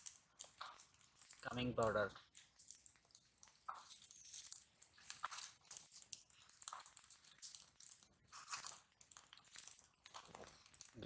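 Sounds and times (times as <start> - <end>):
crunching and rustling handling: 0.0 - 11.0
scattered crackles: 0.0 - 11.0.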